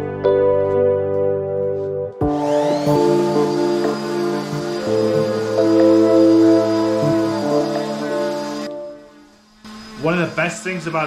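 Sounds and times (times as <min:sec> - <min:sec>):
background music: 0:00.0 - 0:09.6
orbital sander whine: 0:02.2 - 0:11.0
hiss of sanding wood: 0:02.5 - 0:08.7.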